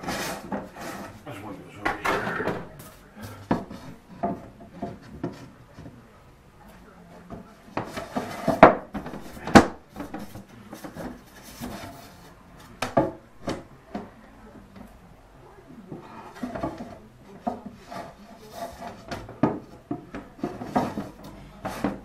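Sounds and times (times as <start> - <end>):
wood panel scraping: 0.0 - 1.2, 1.8 - 5.5, 7.8 - 12.2, 16.2 - 22.0.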